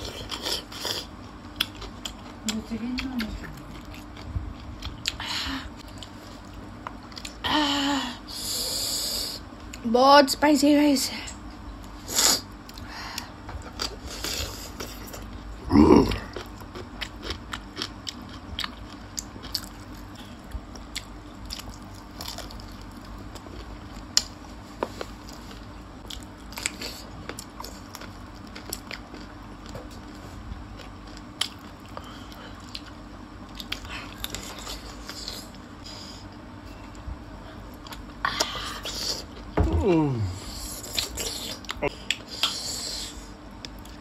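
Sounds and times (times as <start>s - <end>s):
crunchy biting and chewing: 13.6s - 36.3s.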